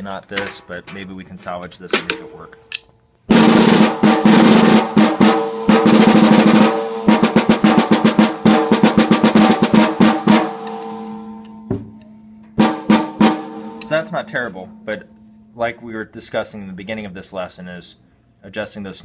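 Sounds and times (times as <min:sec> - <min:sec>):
drum head ringing: 0:00.0 - 0:15.7
snare drum roll and strokes: 0:03.3 - 0:11.3, 0:12.6 - 0:14.5.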